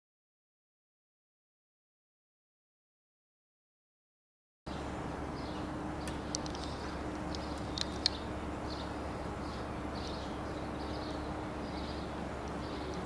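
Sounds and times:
city background hum: 0:04.7 - 0:13.0
small birds chirping: 0:04.7 - 0:13.0
sharp clicks: 0:06.0 - 0:08.2.

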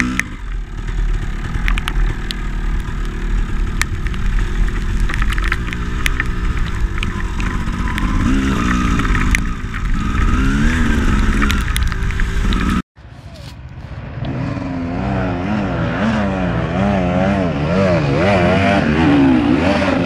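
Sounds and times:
dirt bike engine revving: 0:00.0 - 0:12.8, 0:13.9 - 0:20.0
sharp clicks and rattles: 0:00.0 - 0:12.8.

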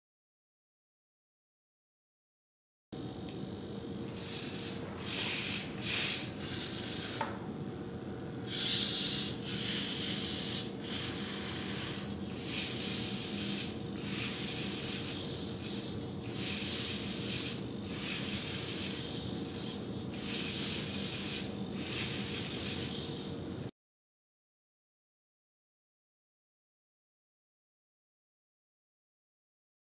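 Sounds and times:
electrical hum: 0:03.0 - 0:23.7
servo motors whirring: 0:04.1 - 0:07.4, 0:08.4 - 0:23.6.

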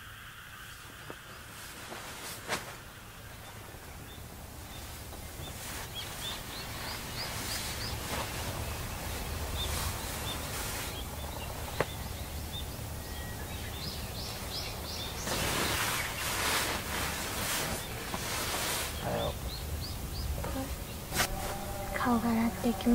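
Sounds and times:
small birds chirping: 0:00.0 - 0:22.9
sleeping bags rustling: 0:00.8 - 0:22.9.

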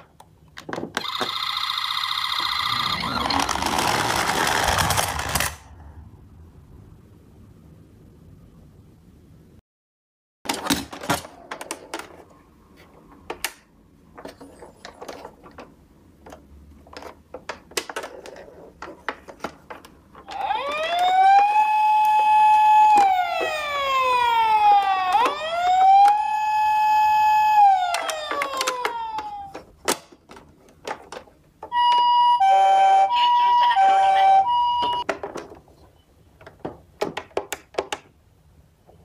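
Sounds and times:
toy electronic siren wailing: 0:01.0 - 0:04.2, 0:20.2 - 0:29.6, 0:31.7 - 0:35.0
plastic toy clicks and knocks: 0:27.9 - 0:31.8, 0:36.4 - 0:38.1.

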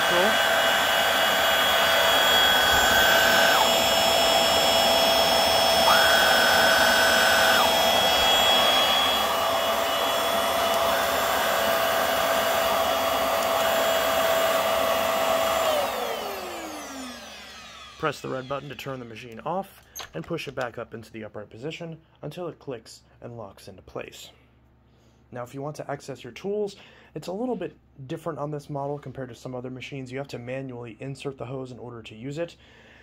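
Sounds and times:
vacuum cleaner motor whine: 0:00.0 - 0:19.0
vacuum motor winding down: 0:00.0 - 0:19.2.

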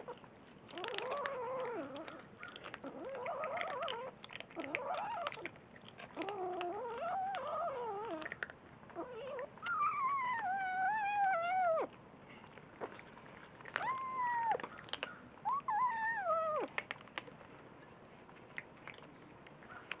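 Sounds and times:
kittens growling: 0:00.0 - 0:12.0, 0:13.6 - 0:17.0.

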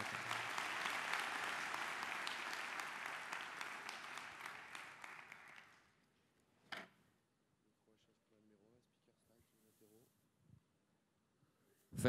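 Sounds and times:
large audience applauding: 0:00.0 - 0:06.0.

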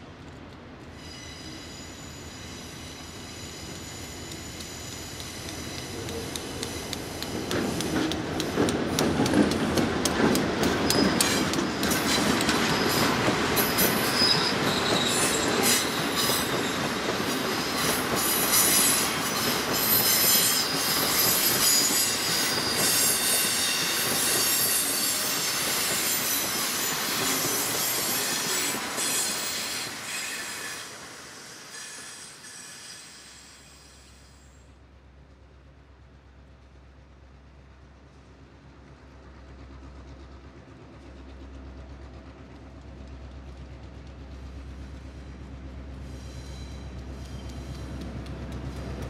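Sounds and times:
diesel locomotive engine: 0:00.0 - 0:49.0
wheels squealing on rail: 0:00.8 - 0:08.6, 0:10.6 - 0:34.7, 0:46.0 - 0:48.1
wheels clicking over rail joints: 0:04.2 - 0:29.7, 0:46.9 - 0:49.0.

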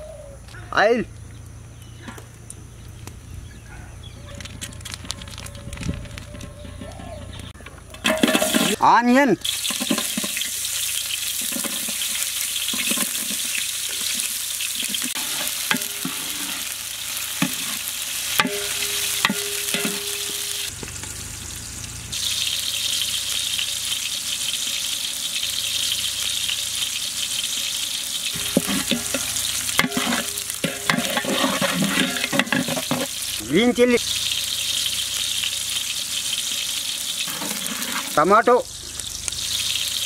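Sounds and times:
metal ladle scraping a pot: 0:06.3 - 0:08.8, 0:09.4 - 0:10.6, 0:11.3 - 0:20.7, 0:28.4 - 0:33.2, 0:37.3 - 0:38.2
onions sizzling in hot oil: 0:08.1 - 0:40.0.

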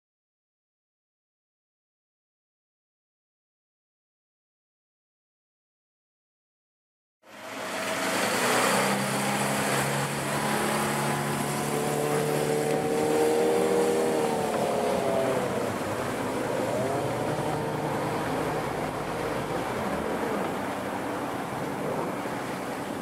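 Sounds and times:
wind: 0:07.2 - 0:23.0
motorboat engine humming: 0:07.3 - 0:23.0
water wash rushing: 0:07.3 - 0:23.0.

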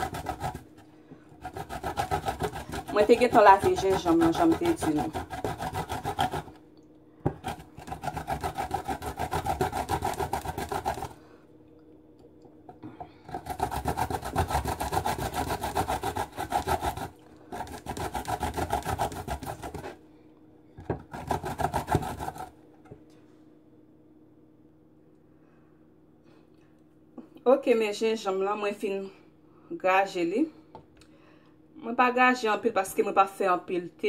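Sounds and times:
ginger rasping on a grater: 0:00.0 - 0:06.6, 0:07.3 - 0:11.2, 0:13.2 - 0:20.0, 0:21.0 - 0:22.5.

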